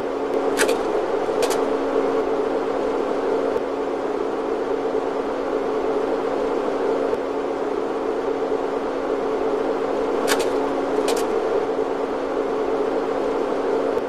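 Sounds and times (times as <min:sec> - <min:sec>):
mechanical hum with hiss: 0:00.0 - 0:14.0.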